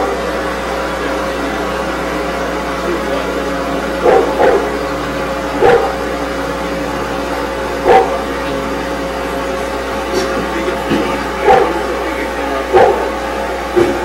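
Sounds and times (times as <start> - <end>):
steady hum: 0.0 - 14.0
dog barking: 4.0 - 4.8, 5.6 - 6.1, 7.8 - 8.3, 11.4 - 11.9, 12.6 - 13.2.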